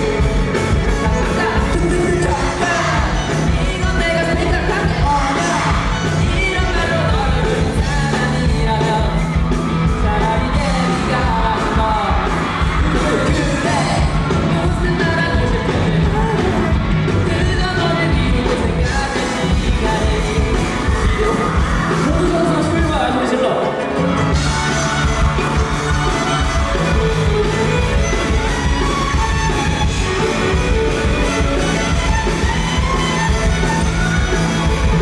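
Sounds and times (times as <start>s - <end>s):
person singing: 0.0s - 23.2s
electric bass: 0.0s - 35.0s
live pop-rock band: 0.0s - 35.0s.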